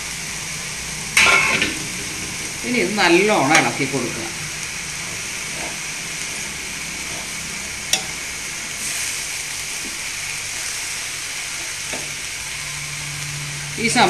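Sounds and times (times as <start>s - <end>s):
vegetables sizzling in a pan: 0.0s - 14.0s
metal spoon clinking on a pan: 7.9s - 8.2s.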